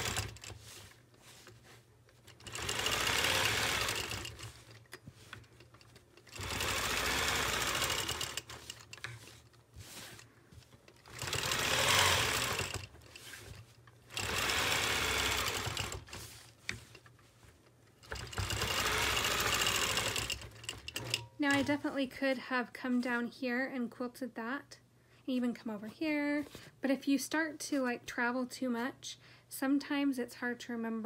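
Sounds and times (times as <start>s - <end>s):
quilting machine stitching: 0.0s - 22.0s.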